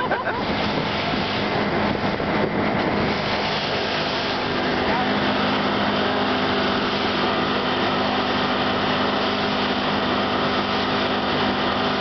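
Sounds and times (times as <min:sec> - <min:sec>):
churning water: 0:00.0 - 0:12.0
outboard motor running: 0:00.0 - 0:12.0.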